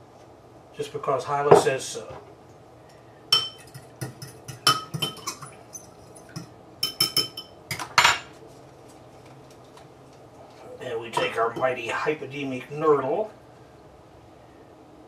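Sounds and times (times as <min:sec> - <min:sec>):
metal fork clinking against ceramic bowl: 0:03.3 - 0:08.1.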